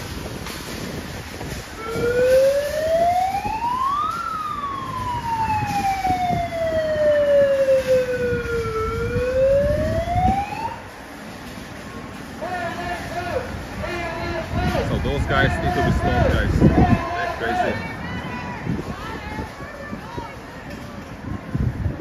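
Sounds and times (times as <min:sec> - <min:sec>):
emergency vehicle siren wailing: 0:00.0 - 0:11.6, 0:12.2 - 0:20.8
traffic rumble: 0:00.0 - 0:22.0.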